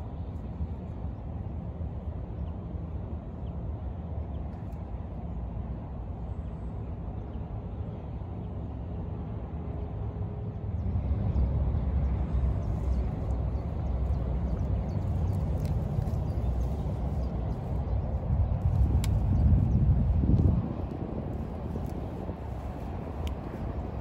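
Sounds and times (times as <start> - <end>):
wind buffeting microphone: 10.5 - 24.0
faint ticks and rustles: 12.6 - 19.7.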